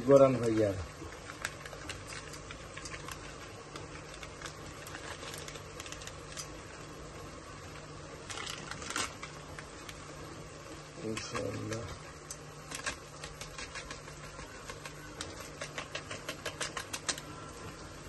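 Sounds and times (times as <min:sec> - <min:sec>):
steady low hum: 0:00.0 - 0:18.0
utensil clicking against pot: 0:11.1 - 0:17.3.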